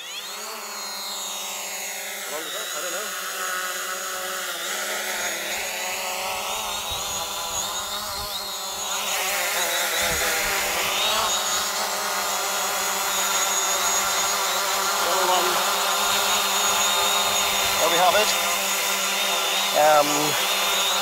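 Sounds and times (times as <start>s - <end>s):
drone propellers whining: 0.0s - 21.0s.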